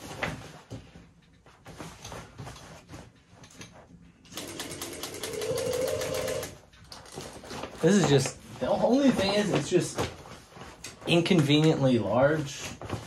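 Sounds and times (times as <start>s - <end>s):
rustling of crinkly material: 0.0s - 4.2s, 6.6s - 13.0s
sewing machine stitching: 4.3s - 6.6s.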